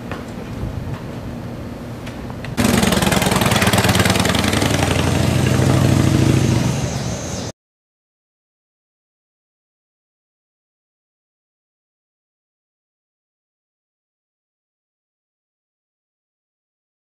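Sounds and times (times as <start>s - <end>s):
outdoor background noise: 0.0s - 7.6s
loud engine running: 2.6s - 7.5s.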